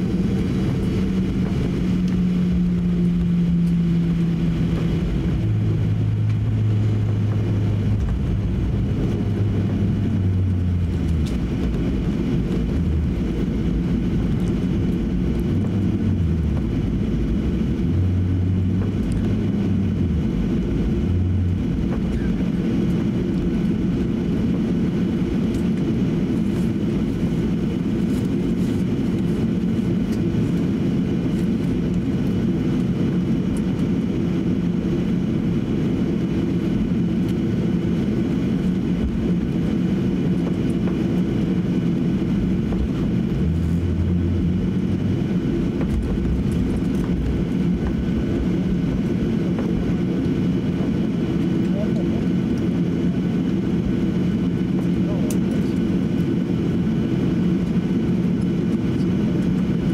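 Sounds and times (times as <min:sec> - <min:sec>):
deeper rumbles: 0:00.0 - 0:28.0, 0:31.9 - 0:55.2
airplane engines idling in cabin: 0:00.0 - 0:59.9.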